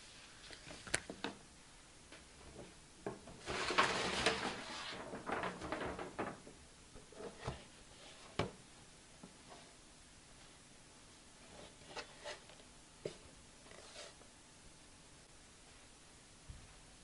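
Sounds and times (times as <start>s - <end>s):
paper bag rustling: 3.3s - 7.8s.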